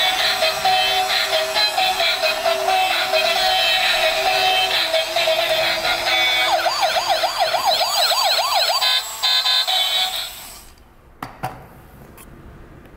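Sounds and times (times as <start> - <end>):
toy wailing siren: 0.0 - 10.4
toy electronic tune: 0.0 - 10.5.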